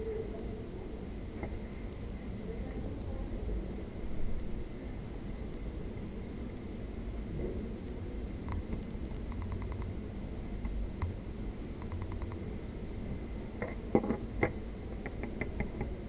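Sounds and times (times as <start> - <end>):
steady low hum: 0.0 - 16.0
rapid light ticking: 5.2 - 12.6
small clicks: 8.4 - 10.0, 11.8 - 12.4.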